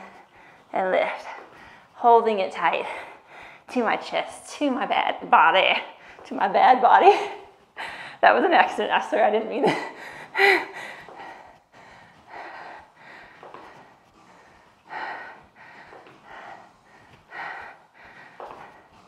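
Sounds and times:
woman breathing hard: 0:00.0 - 0:02.0, 0:02.8 - 0:03.7, 0:07.4 - 0:08.2, 0:09.7 - 0:19.0.

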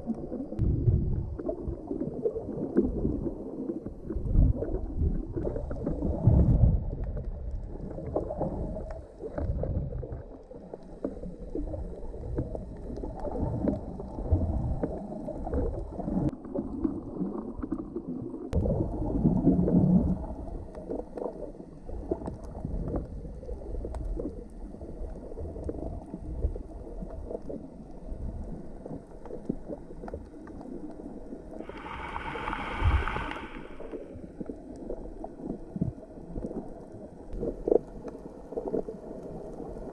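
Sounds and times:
muffled underwater water movement: 0:00.0 - 0:39.9
bright hiss: 0:31.6 - 0:34.0.

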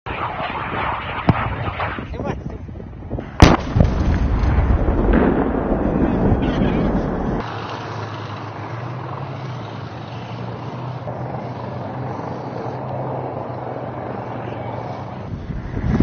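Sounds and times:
vehicle engine running: 0:05.8 - 0:15.6.

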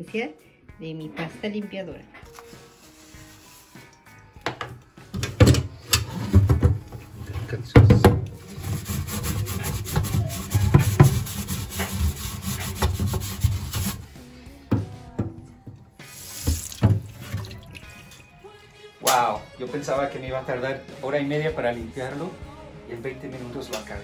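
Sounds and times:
metal scrubbing pad scouring basket: 0:08.4 - 0:14.1.

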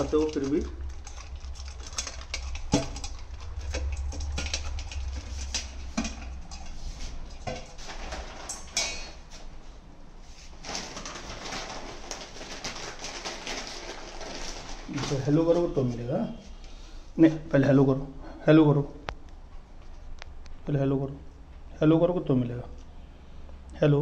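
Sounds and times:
pellets clicking against metal bowl: 0:00.0 - 0:06.8
puppy crunching dry kibble: 0:00.0 - 0:08.6, 0:10.6 - 0:15.4.

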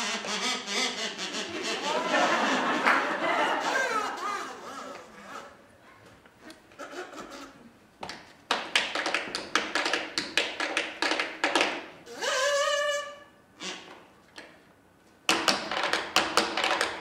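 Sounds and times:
tap shoes tapping: 0:08.0 - 0:11.8.

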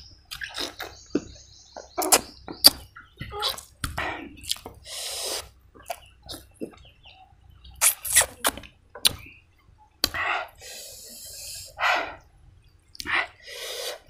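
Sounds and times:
chewing: 0:00.3 - 0:01.4, 0:02.0 - 0:06.9
crisp vegetable crunching: 0:07.8 - 0:08.7
loud short breaths: 0:13.1 - 0:14.0.

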